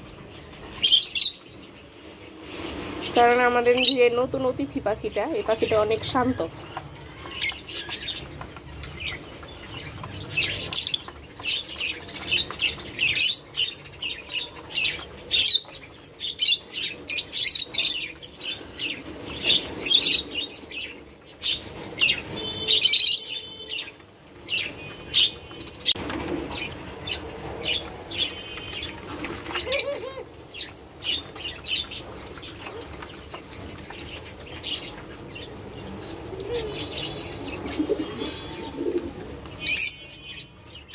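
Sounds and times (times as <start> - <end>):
doves pecking seed clicks: 5.6 - 16.3, 27.8 - 35.3.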